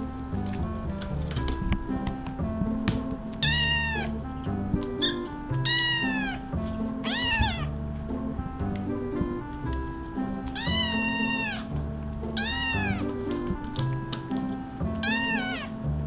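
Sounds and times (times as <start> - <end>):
background music: 0.0 - 16.0
kittens meowing: 3.4 - 4.2, 5.0 - 7.7, 10.5 - 11.7, 12.4 - 13.1, 15.0 - 15.8.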